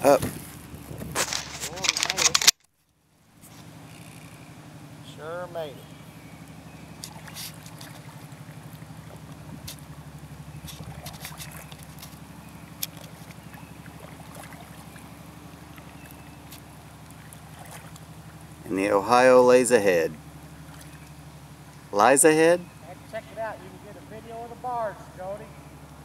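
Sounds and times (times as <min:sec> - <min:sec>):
paddle drips and splashes: 0:06.4 - 0:18.7, 0:20.2 - 0:22.0.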